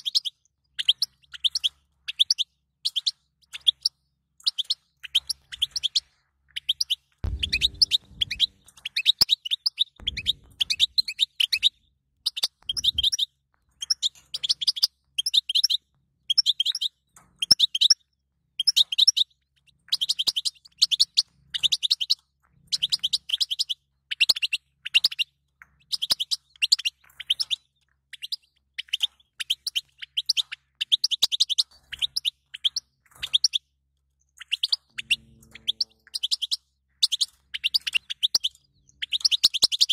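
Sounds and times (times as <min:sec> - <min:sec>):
finch twittering: 0:00.0 - 0:18.0, 0:34.4 - 0:39.9.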